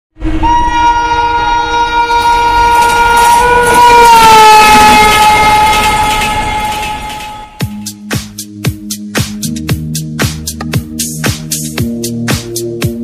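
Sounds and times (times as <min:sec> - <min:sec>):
rush of passing train: 0:00.2 - 0:07.9
train horn blast: 0:00.3 - 0:07.9.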